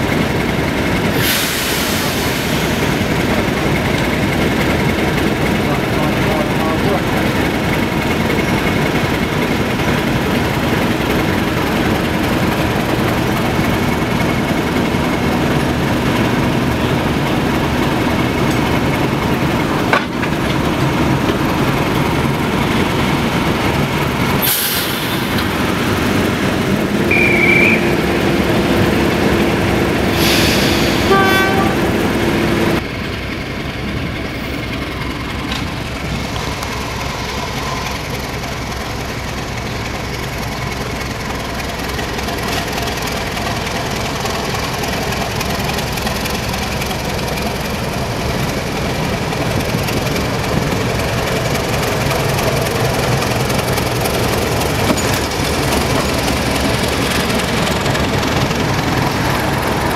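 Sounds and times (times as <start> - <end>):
diesel locomotive idling: 0.0 - 59.9
short high whistle: 27.1 - 28.0
locomotive horn: 27.1 - 28.1, 30.2 - 32.1.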